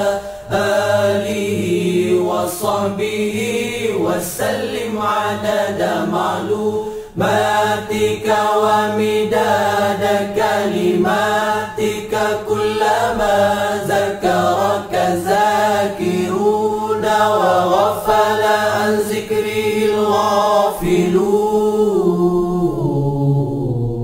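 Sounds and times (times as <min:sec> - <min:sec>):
person chanting melodically: 0:00.0 - 0:24.0
low hummed drone: 0:21.3 - 0:24.0.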